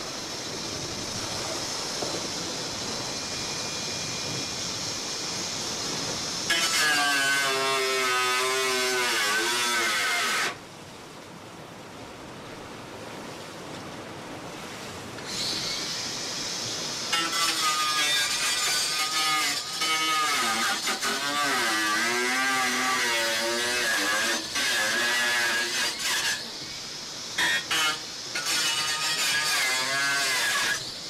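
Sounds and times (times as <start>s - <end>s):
yacht rushing through water: 0.0s - 6.5s, 10.5s - 17.2s
electric power tool motor: 6.5s - 10.6s.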